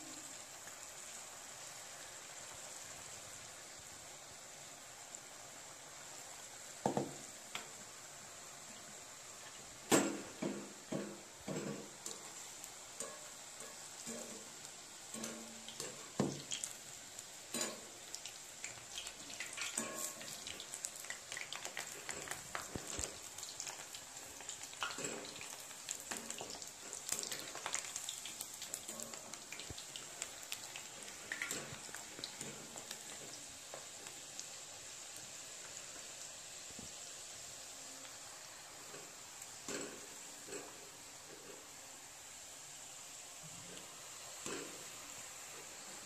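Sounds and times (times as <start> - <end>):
potatoes deep-frying in oil: 0.0 - 46.0.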